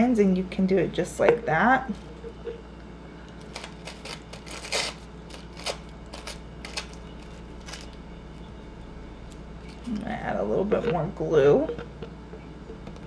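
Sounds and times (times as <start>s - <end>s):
tissue paper tearing and rustling: 3.4s - 8.0s.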